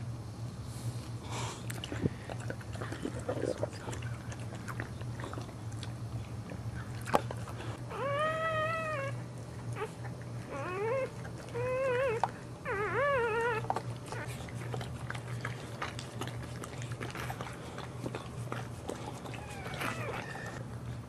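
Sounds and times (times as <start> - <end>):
steady low hum: 0.0 - 21.0
puppy crying high-pitched: 7.9 - 9.2, 10.5 - 14.3, 19.3 - 20.6.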